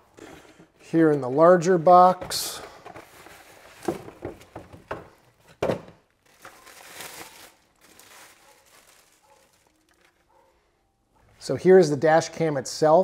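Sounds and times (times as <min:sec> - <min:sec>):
packaging crinkling and rustling: 0:03.0 - 0:10.4.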